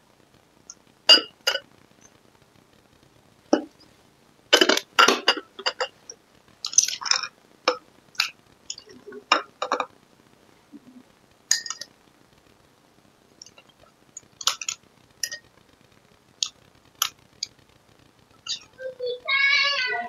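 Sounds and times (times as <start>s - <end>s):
metal spoon clinking on glass bowls: 11.5s - 11.9s.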